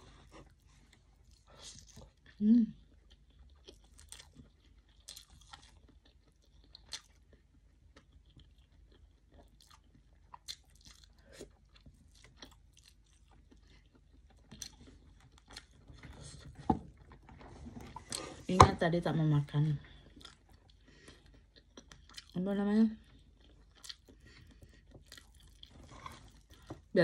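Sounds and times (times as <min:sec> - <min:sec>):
chewing with wet mouth clicks: 0:01.2 - 0:16.4, 0:20.1 - 0:22.4, 0:23.0 - 0:26.8.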